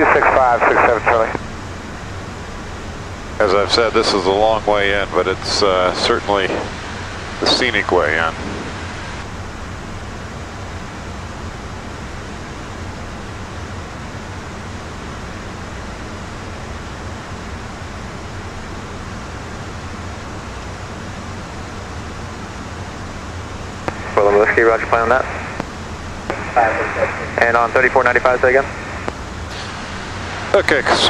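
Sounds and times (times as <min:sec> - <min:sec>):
low cabin hum: 0:00.0 - 0:31.0
jet cabin air rush: 0:03.4 - 0:09.3, 0:23.8 - 0:31.0.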